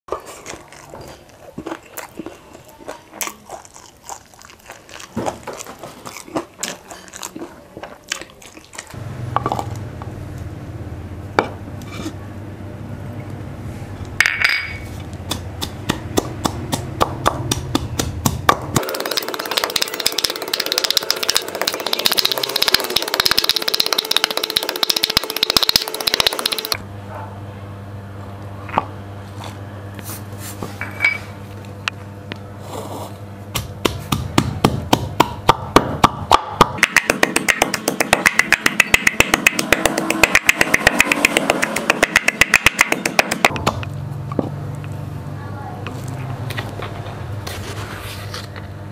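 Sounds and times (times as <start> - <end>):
pestle pounding in wooden mortar: 15.0 - 26.8, 33.5 - 43.9.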